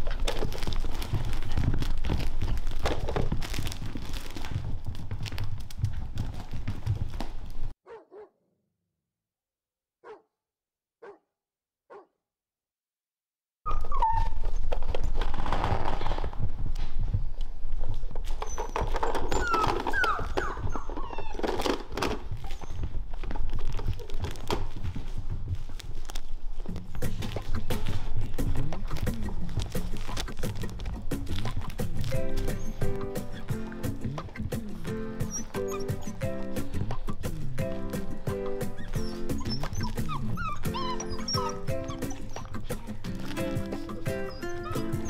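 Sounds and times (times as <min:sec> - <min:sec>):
paw scrabbling and thumps: 0:00.0 - 0:07.7, 0:13.7 - 0:45.0
puppies scuffling and rustling: 0:00.0 - 0:07.8, 0:13.7 - 0:45.0
dog barks: 0:07.8 - 0:08.4, 0:10.0 - 0:10.3, 0:11.0 - 0:11.3, 0:11.9 - 0:12.1, 0:38.7 - 0:45.0
puppy yips: 0:07.9 - 0:08.3, 0:10.0 - 0:10.2, 0:13.7 - 0:15.2, 0:18.3 - 0:23.0, 0:31.4 - 0:37.0, 0:37.6 - 0:45.0.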